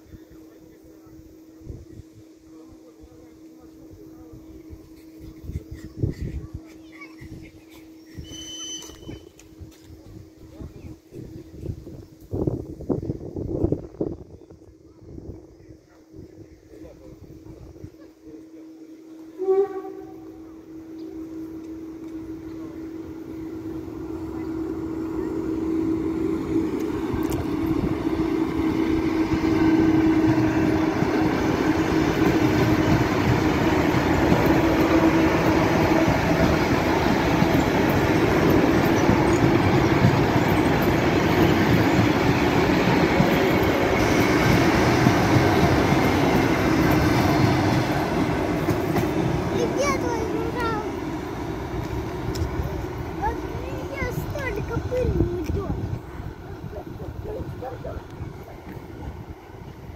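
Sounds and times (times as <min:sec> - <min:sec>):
train wheels rumbling on rails: 0:16.2 - 0:59.9
train horn call with bending pitch: 0:18.8 - 0:31.2.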